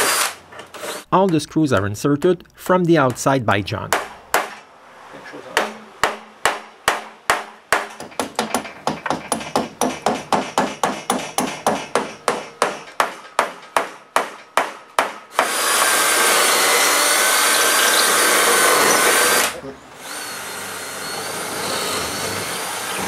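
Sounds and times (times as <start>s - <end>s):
cordless drill running: 0.0s - 1.1s, 15.4s - 23.0s.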